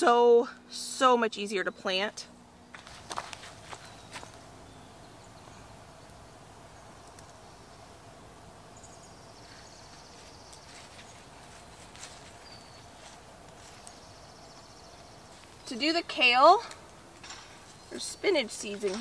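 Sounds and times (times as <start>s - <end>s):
steady low hum: 0.0s - 19.0s
faint clicks: 7.0s - 7.4s.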